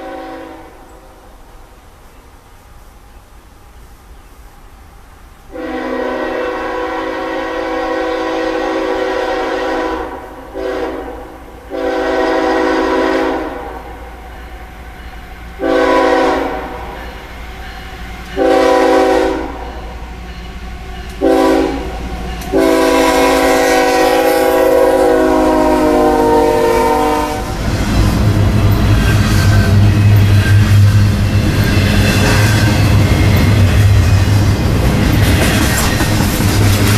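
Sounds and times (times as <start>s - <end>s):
locomotive air horn blasts: 0.0s - 0.9s, 5.5s - 14.0s, 15.6s - 17.2s, 18.4s - 20.0s, 21.2s - 27.6s
diesel locomotive rumble: 13.9s - 36.9s.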